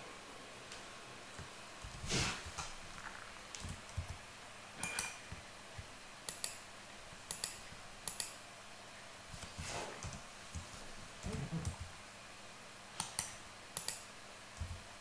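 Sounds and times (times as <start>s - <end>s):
mouse clicks: 13.0s - 14.0s.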